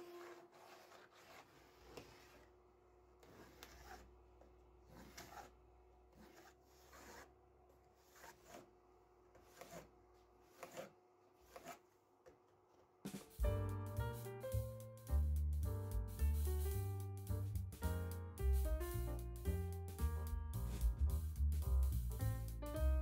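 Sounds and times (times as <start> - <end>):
pencil scratching on wood: 0.0 - 2.5, 3.2 - 4.1, 4.8 - 7.3, 7.9 - 8.7, 9.4 - 11.9
plastic square sliding over wood: 0.0 - 2.5.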